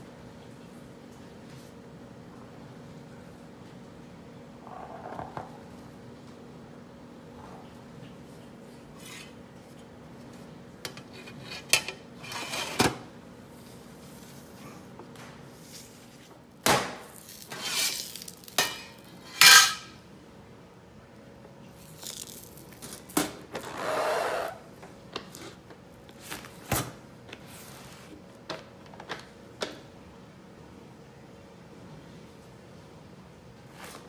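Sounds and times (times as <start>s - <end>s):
metal lid scraping: 19.3s - 19.9s.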